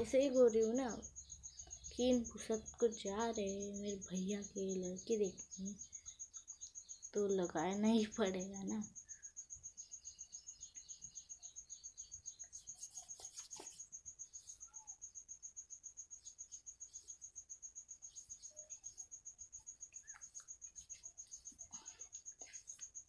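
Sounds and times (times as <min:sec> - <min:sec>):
cricket chirping: 0:00.0 - 0:23.0
faint scratchy sounds: 0:12.0 - 0:23.0.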